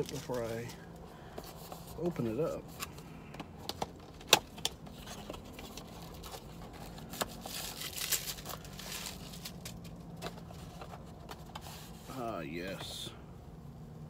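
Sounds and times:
wrapping rustling: 0:04.9 - 0:11.0.

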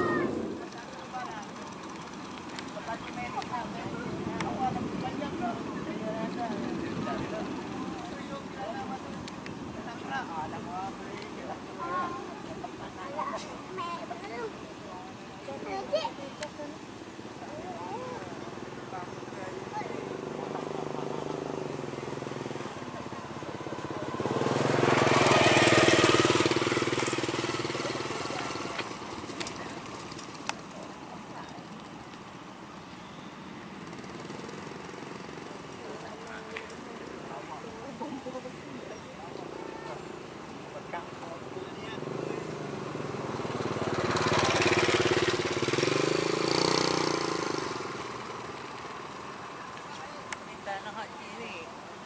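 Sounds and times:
engine passing with rushing hiss: 0:00.0 - 0:31.2, 0:39.2 - 0:52.0
aircraft engine passing by: 0:17.6 - 0:30.4.

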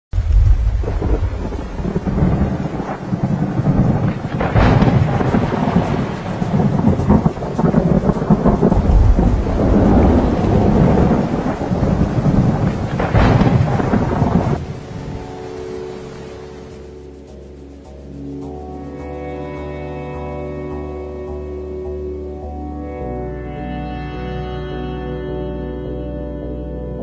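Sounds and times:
rolling thunder: 0:00.1 - 0:16.7
rain: 0:00.1 - 0:24.4.

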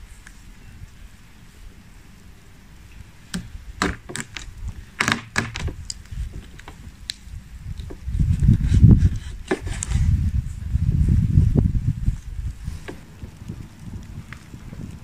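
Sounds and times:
low rumble: 0:05.7 - 0:15.0.

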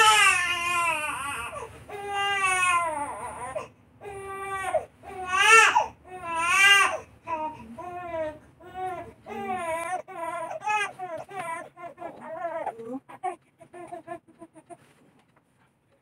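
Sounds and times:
baby crying: 0:00.0 - 0:07.9, 0:08.8 - 0:14.0.

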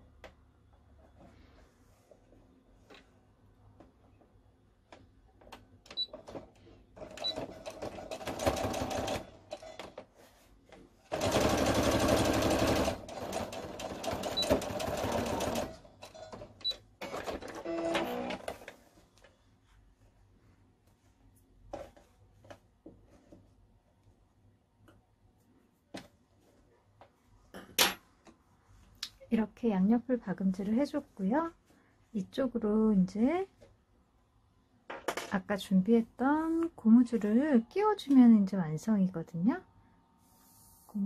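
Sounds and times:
sewing machine stitching: 0:06.0 - 0:09.9, 0:11.1 - 0:16.4, 0:17.0 - 0:18.7.

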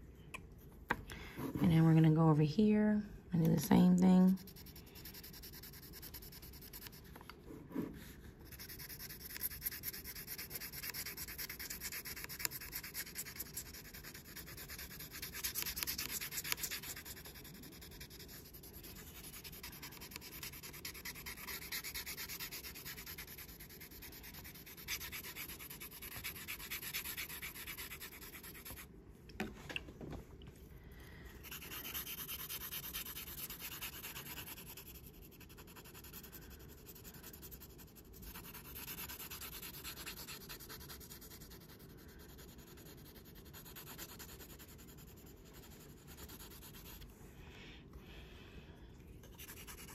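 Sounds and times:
pencil shading on paper: 0:04.3 - 0:07.0, 0:07.7 - 0:28.9, 0:31.4 - 0:47.0, 0:49.2 - 0:49.9.

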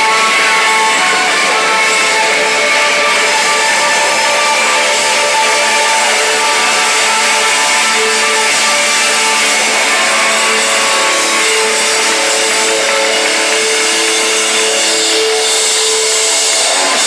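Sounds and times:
live rock band playing: 0:00.0 - 0:17.0.

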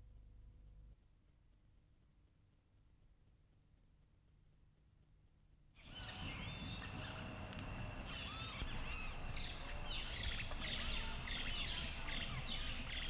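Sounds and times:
birds chirping and whistling: 0:05.8 - 0:13.0
low background rumble: 0:05.9 - 0:13.0.

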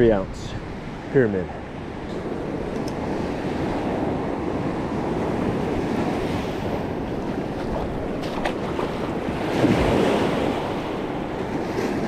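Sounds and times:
wind buffeting microphone: 0:00.0 - 0:12.0
surf breaking on beach: 0:03.1 - 0:12.0.

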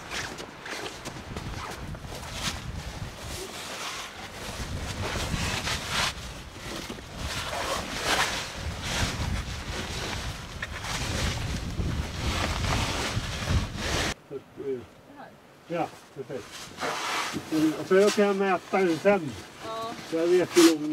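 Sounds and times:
wind buffeting microphone: 0:01.0 - 0:03.4, 0:04.1 - 0:14.2.

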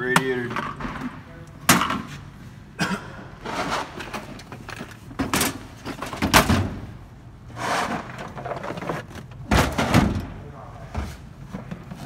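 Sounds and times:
drawer scraping slide: 0:03.4 - 0:04.2, 0:07.5 - 0:09.1
steel toolbox clunks and knocks: 0:03.7 - 0:06.9, 0:08.1 - 0:10.4.

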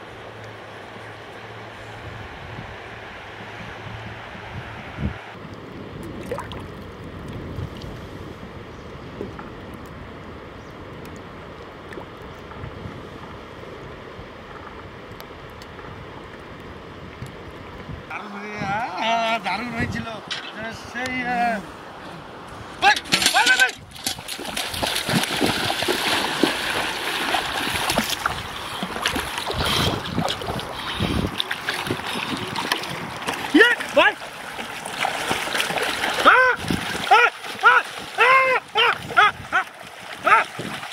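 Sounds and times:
wind on microphone: 0:01.7 - 0:18.9, 0:23.7 - 0:33.5, 0:35.2 - 0:40.9
light water splashes: 0:05.5 - 0:08.0, 0:22.5 - 0:40.9
small waves lapping: 0:20.1 - 0:40.9.

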